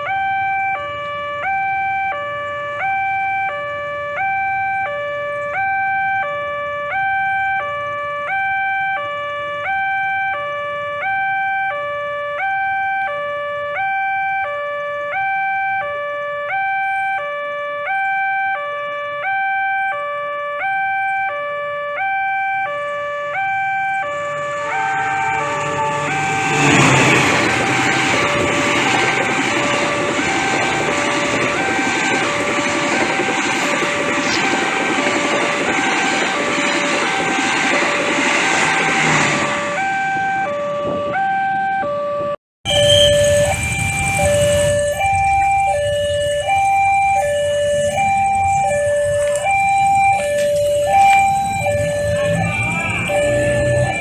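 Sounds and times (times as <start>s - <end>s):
two-tone level crossing alarm: 0.0s - 54.0s
passing train rumble: 23.3s - 41.7s, 42.7s - 54.0s.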